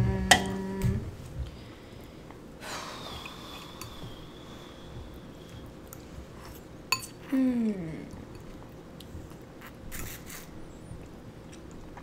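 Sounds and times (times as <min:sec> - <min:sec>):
person drawing noisy breath: 0:01.5 - 0:05.7.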